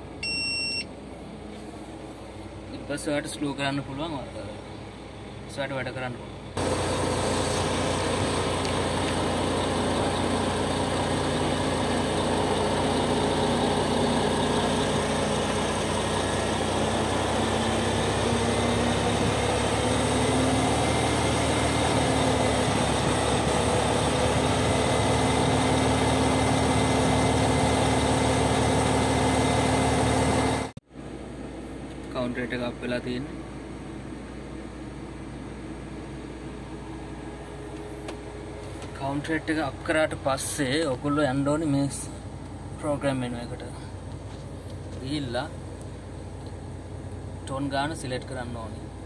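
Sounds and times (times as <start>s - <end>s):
crane engine and hydraulics running: 0.0s - 3.1s, 6.2s - 32.1s, 33.3s - 42.9s, 43.6s - 47.4s
hydraulic whine: 6.6s - 30.8s.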